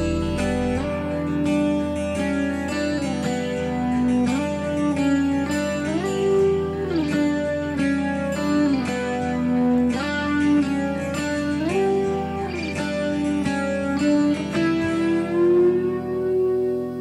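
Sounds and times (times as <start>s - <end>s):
guitar music with sliding notes: 0.0s - 17.0s.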